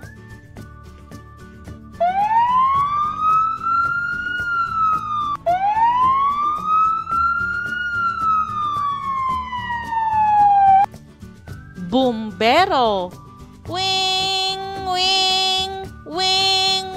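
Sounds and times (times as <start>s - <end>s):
background music with steady beat: 0.0s - 16.9s
fire engine siren wailing: 2.0s - 10.9s.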